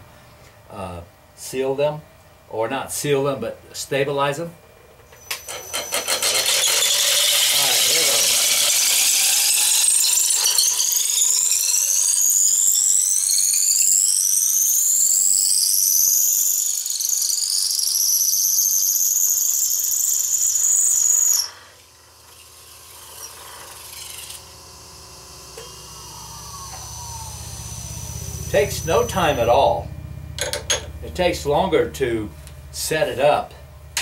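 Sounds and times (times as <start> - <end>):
lathe humming: 5.2 - 18.0, 20.2 - 34.0
blade shaving spinning wood whine: 5.2 - 34.0.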